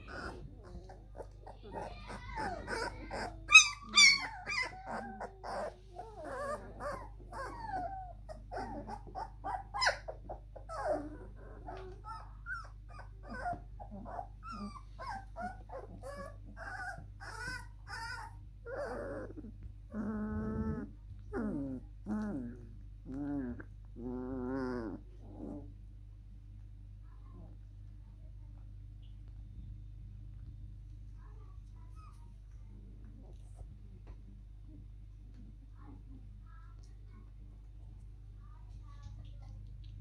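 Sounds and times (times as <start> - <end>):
puppies whining and squeaking: 0.0 - 23.7.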